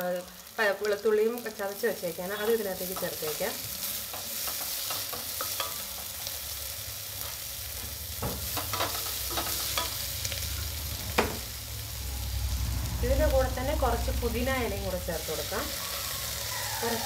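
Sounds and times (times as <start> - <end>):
onions sizzling in hot oil: 0.0 - 17.0.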